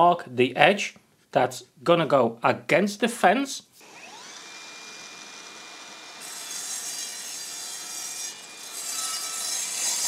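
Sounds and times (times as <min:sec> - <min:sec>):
saw motor whine: 0:03.8 - 0:09.4
saw blade cutting board: 0:03.8 - 0:10.0.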